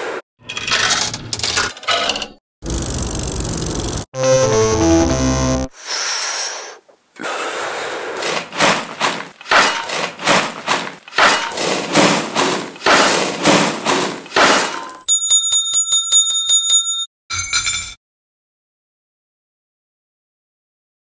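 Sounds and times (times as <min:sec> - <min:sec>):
shovels scraping sand: 0:00.0 - 0:00.2, 0:07.4 - 0:15.0
ringing bell: 0:15.1 - 0:18.0.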